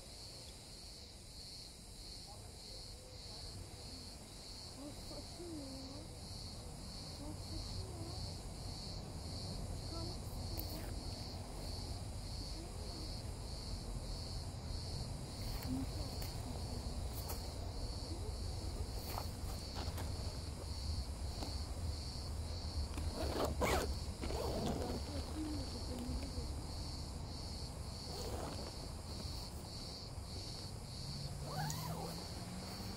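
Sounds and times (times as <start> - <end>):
crickets chirping: 0.0 - 32.9
tent fabric rasping: 23.0 - 25.4, 28.1 - 29.2, 31.4 - 32.9.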